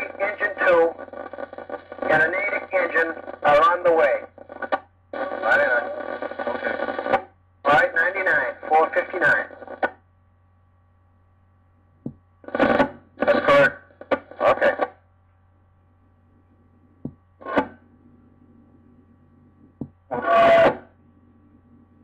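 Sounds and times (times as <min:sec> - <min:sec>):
radio transmission bursts: 0:00.0 - 0:10.0, 0:12.4 - 0:15.0, 0:17.4 - 0:17.9, 0:20.1 - 0:21.0
sharp radio clicks: 0:00.0 - 0:10.0, 0:12.1 - 0:15.0
tape hum: 0:00.0 - 0:22.0.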